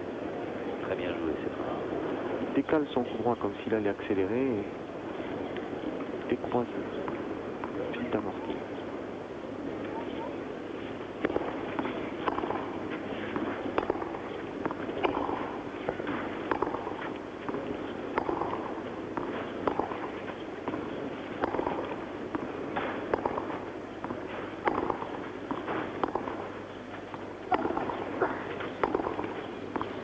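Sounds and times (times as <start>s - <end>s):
background murmur: 0.0s - 30.0s
racket hitting tennis ball: 11.2s - 30.0s.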